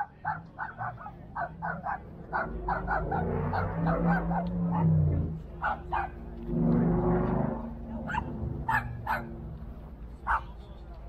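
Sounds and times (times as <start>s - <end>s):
low steady hum: 0.2s - 11.0s
small dog yapping: 5.6s - 6.2s, 8.1s - 9.3s.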